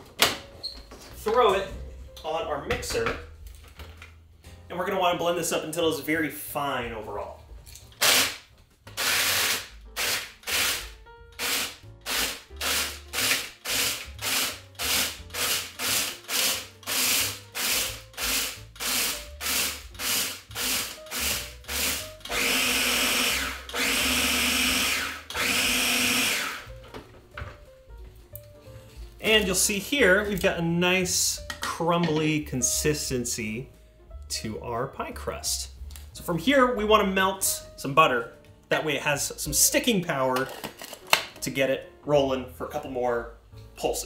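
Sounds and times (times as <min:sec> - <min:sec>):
electric food chopper bursts: 0:09.0 - 0:26.7.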